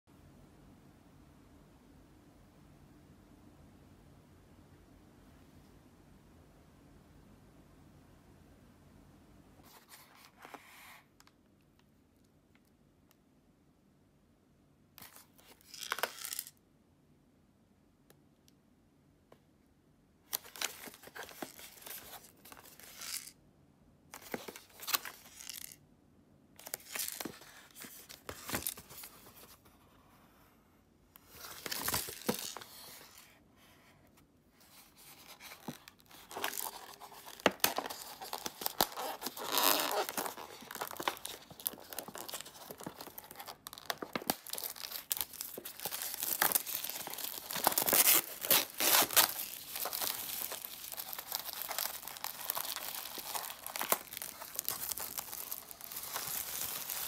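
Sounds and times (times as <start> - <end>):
plastic shrink-wrap crinkling: 35.0 - 57.0
plastic wrap tearing: 36.1 - 57.0.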